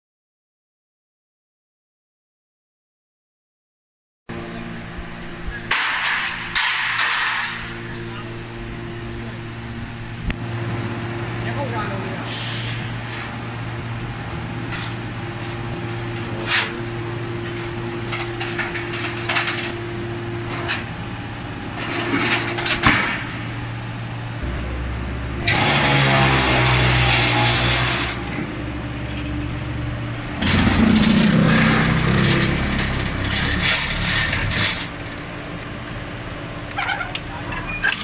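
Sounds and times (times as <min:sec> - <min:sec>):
straining pump and ram noise: 0:04.3 - 0:38.0
metal clanks: 0:05.7 - 0:07.8, 0:29.0 - 0:35.2
hydraulic power pack humming: 0:23.2 - 0:38.0.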